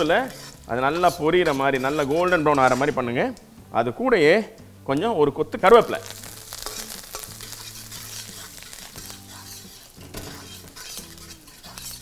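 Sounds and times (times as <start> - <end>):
hot oil sizzling: 0.0 - 3.0, 5.6 - 12.0
metal spatula scraping a pan: 0.0 - 3.1, 5.8 - 12.0.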